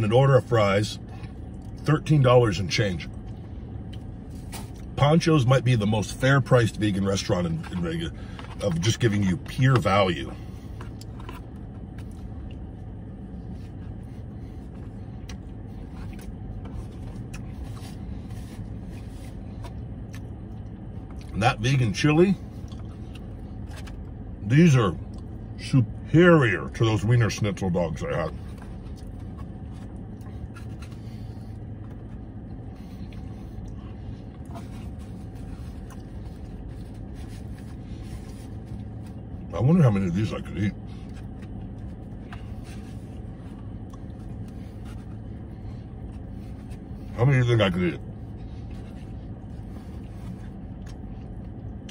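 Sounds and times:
car cabin hum: 0:00.0 - 0:51.9
person chewing food: 0:10.6 - 0:21.4, 0:22.4 - 0:24.3, 0:25.0 - 0:25.6, 0:28.3 - 0:39.5, 0:41.0 - 0:47.1, 0:48.0 - 0:51.9
clicks and rustles from eating: 0:28.3 - 0:39.5, 0:48.0 - 0:51.9.

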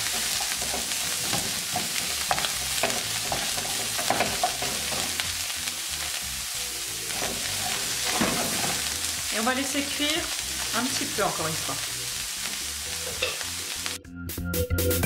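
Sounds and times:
wooden spoon scraping a pan: 0:00.0 - 0:05.2, 0:07.0 - 0:09.0
mushrooms and onions sizzling: 0:00.0 - 0:14.0.

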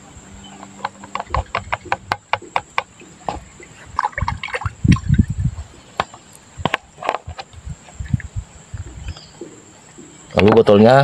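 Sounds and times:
plastic bottle clicks and knocks: 0:00.8 - 0:03.5
water pouring into plastic bottle: 0:03.3 - 0:05.4.

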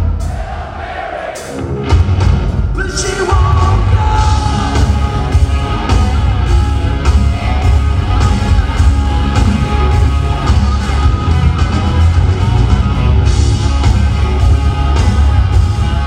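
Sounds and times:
live rock band playing: 0:01.4 - 0:16.0
person singing: 0:02.8 - 0:05.2.

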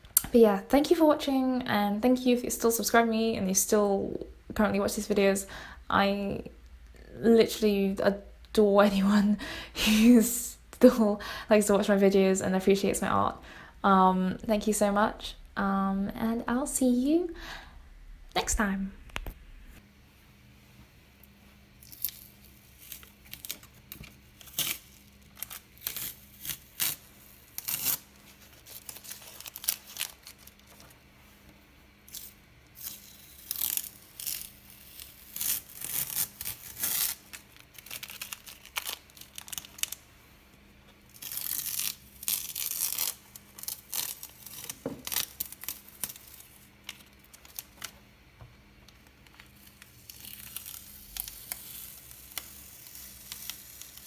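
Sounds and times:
masking tape peeling off paper: 0:21.8 - 0:30.9, 0:32.0 - 0:40.0, 0:41.1 - 0:48.0, 0:49.2 - 0:54.0.

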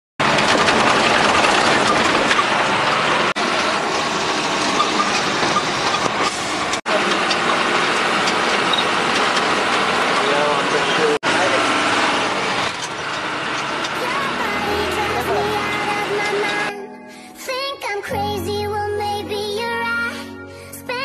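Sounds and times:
truck engine and road noise: 0:00.2 - 0:16.7.

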